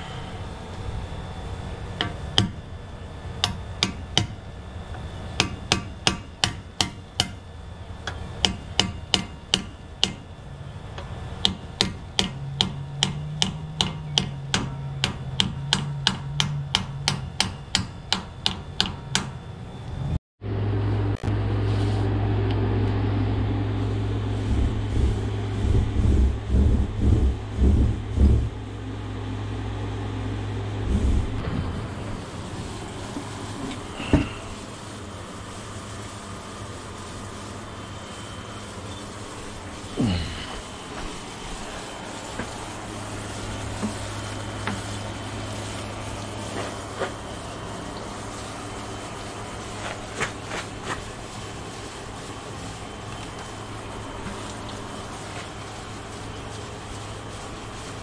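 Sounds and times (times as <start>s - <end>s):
steady low hum: 0.0s - 58.0s
hammer striking metal: 5.4s - 7.4s, 8.4s - 10.2s, 11.4s - 19.4s
heavy thumps: 24.4s - 28.6s.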